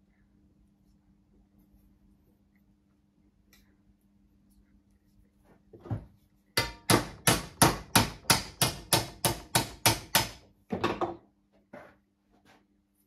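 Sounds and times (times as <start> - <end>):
hammer striking metal: 6.6 - 10.4.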